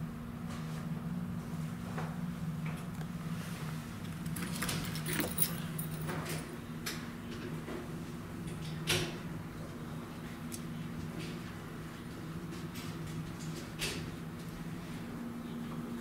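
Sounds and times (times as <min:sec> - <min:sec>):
keys jingling and clicking: 0:04.2 - 0:06.5.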